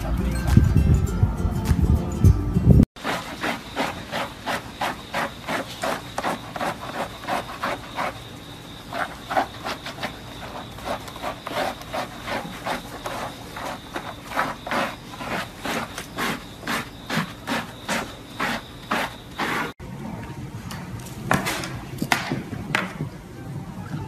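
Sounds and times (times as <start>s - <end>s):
brush scrubbing wet dog coat: 3.0s - 19.8s.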